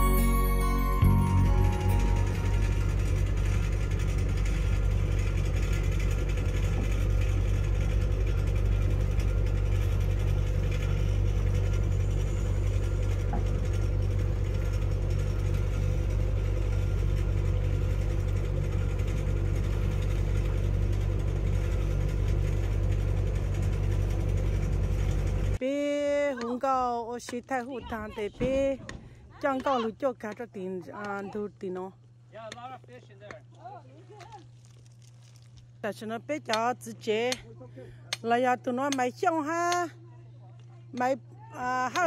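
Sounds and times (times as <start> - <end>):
boat engine running: 0.0 - 26.5.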